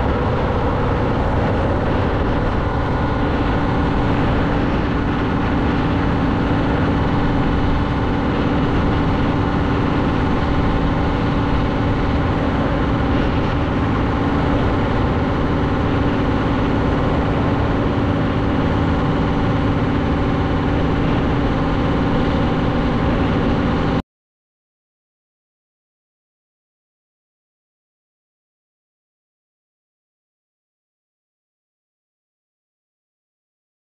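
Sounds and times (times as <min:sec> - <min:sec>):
diesel truck engine droning: 0:00.0 - 0:24.0
road noise: 0:00.0 - 0:24.0.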